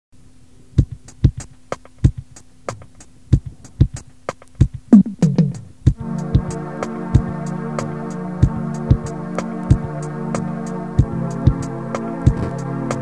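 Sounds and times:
sharp percussive beat: 0:00.8 - 0:06.6
sustained chord: 0:06.0 - 0:13.0.

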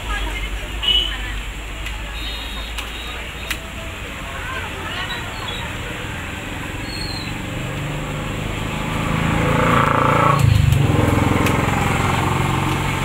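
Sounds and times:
vehicle engine passing by: 0:04.6 - 0:13.0.

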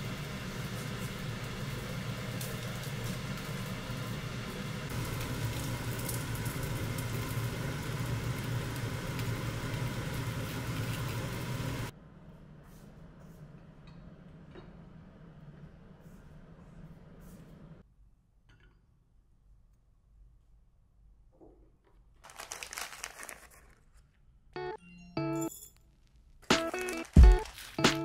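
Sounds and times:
rice cake sizzling in frying pan: 0:00.0 - 0:11.9.

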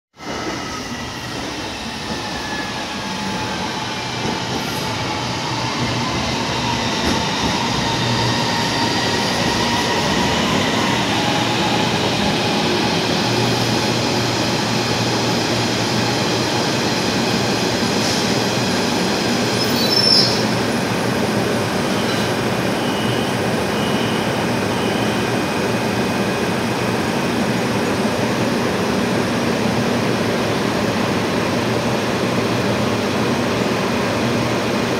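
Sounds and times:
brief high squeal: 0:19.6 - 0:20.5, 0:21.9 - 0:25.3.

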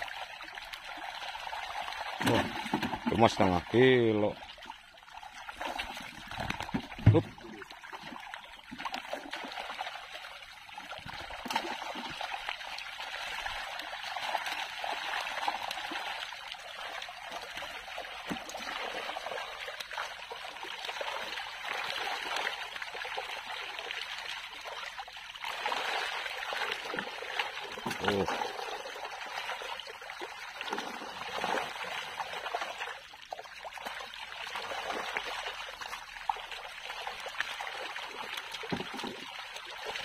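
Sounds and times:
fish thrashing in shallow water: 0:00.9 - 0:03.8, 0:05.2 - 0:23.8.

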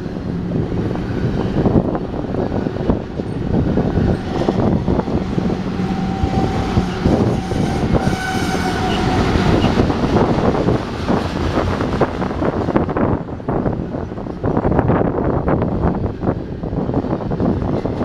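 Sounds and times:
high-pitched wheel squeal: 0:04.1 - 0:09.9.

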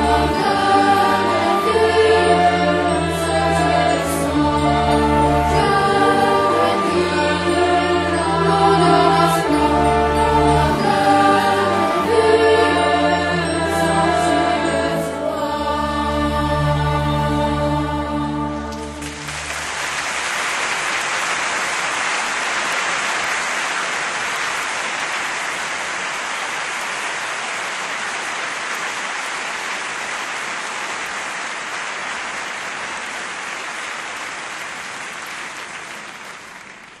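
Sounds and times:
choir holding chord: 0:00.0 - 0:20.0
audience applause: 0:18.7 - 0:37.0.

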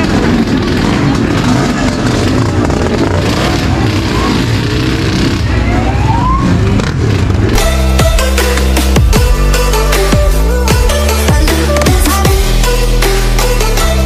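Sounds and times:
two-stroke motorcycle engine running: 0:00.0 - 0:05.6.

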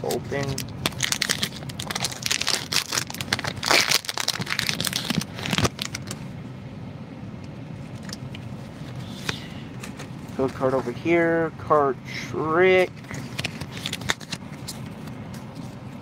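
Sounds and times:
foil wrapper tearing and crinkling: 0:00.1 - 0:06.2, 0:13.1 - 0:14.4.

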